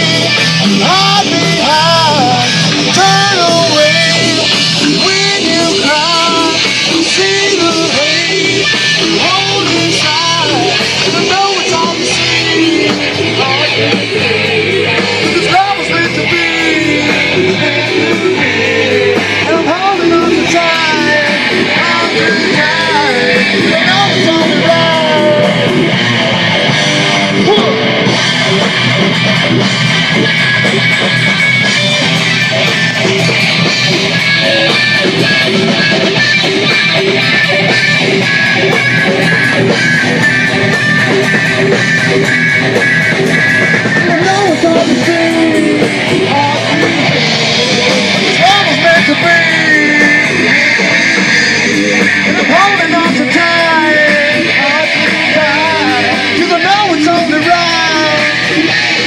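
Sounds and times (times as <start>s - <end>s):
person singing: 0.0s - 28.1s, 43.2s - 59.0s
rock song with guitar: 0.0s - 59.0s.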